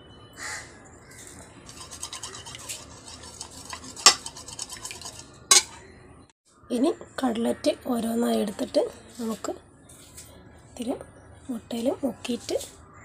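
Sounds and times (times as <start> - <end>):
spoon beating eggs in a bowl: 1.6 - 5.8
spoon knocking on bowl: 3.7 - 5.8.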